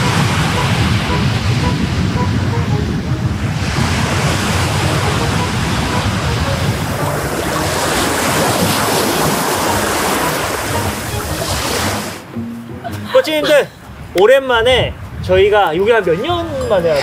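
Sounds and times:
waves washing up a beach: 3.4 - 12.3.

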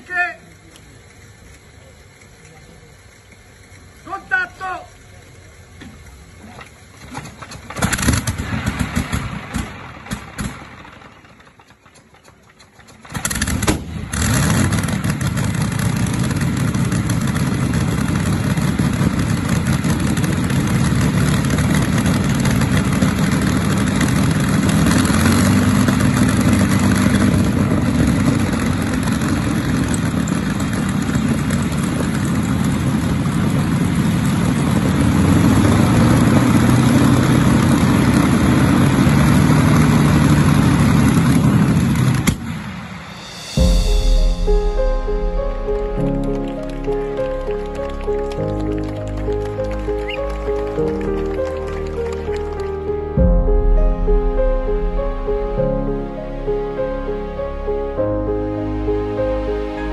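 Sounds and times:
aero engine starting and running: 0.0 - 59.9
sharp engine bangs: 41.4 - 59.9.

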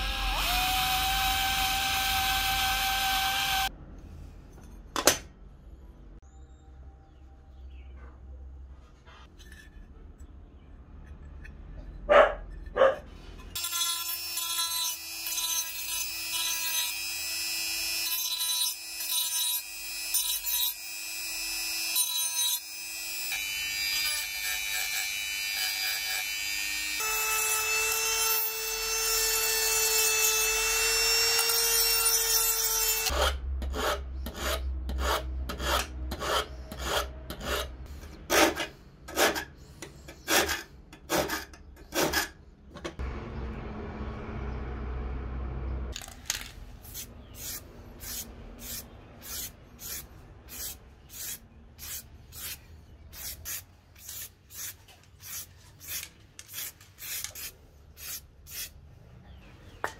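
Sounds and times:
scraping strokes on metal: 31.8 - 42.4, 46.8 - 58.7.

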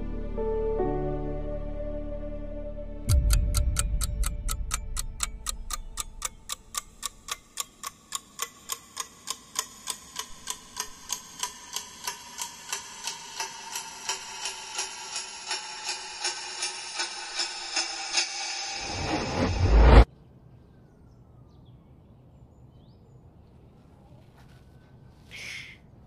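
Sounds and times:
clock ticking: 3.1 - 18.8.

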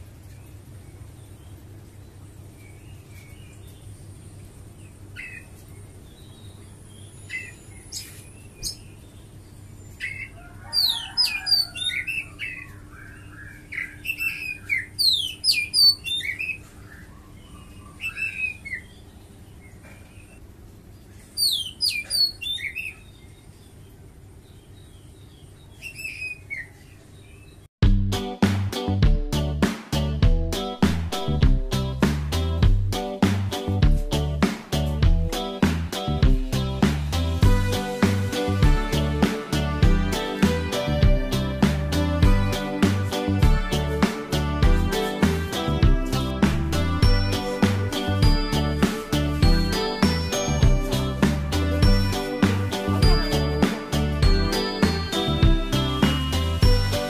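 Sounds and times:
small birds chirping: 0.0 - 27.7
music with a beat: 27.8 - 57.0.

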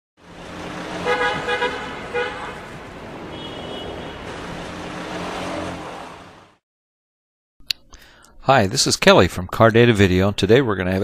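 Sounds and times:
car engine running: 0.2 - 6.6
car horn tooting: 0.8 - 4.4.

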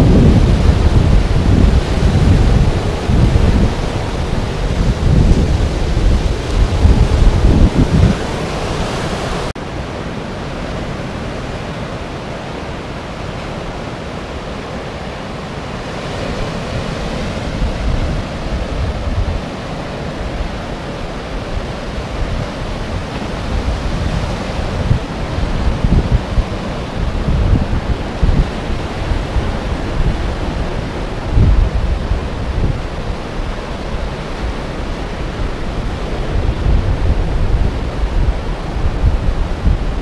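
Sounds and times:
wind buffeting microphone: 0.0 - 9.5, 13.1 - 40.0
surf washing up beach: 0.0 - 40.0.

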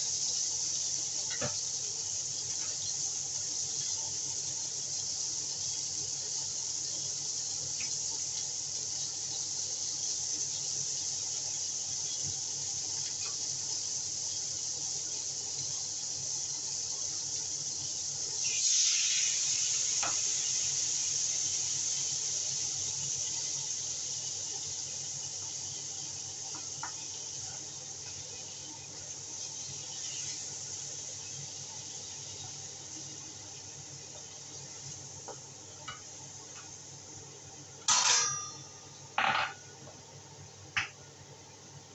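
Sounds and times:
food sizzling in hot oil: 0.0 - 41.9
liquid hitting hot pan: 37.9 - 39.7.

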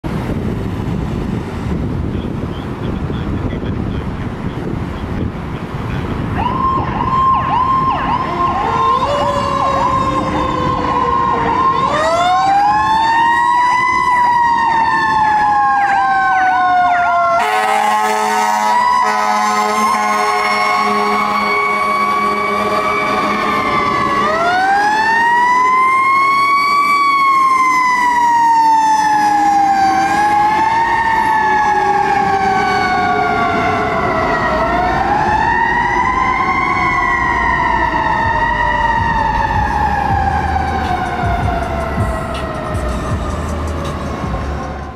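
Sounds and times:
electronic siren warbling: 6.4 - 44.9
horn blast: 17.4 - 23.7.

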